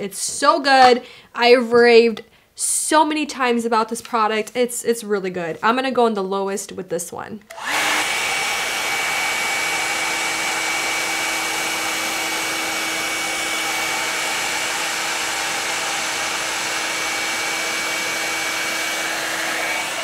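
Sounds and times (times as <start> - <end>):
hair dryer brush running: 7.5 - 20.0.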